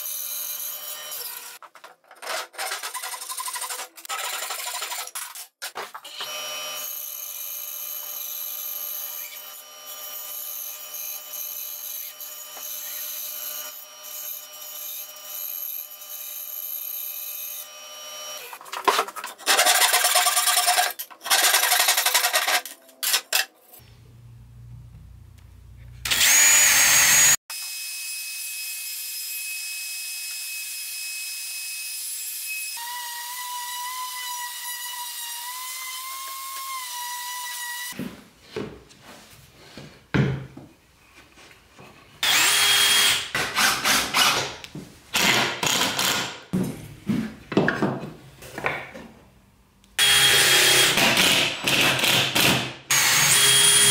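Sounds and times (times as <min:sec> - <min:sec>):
bandsaw cutting wood: 0:26.0 - 0:27.8, 0:50.0 - 0:53.9.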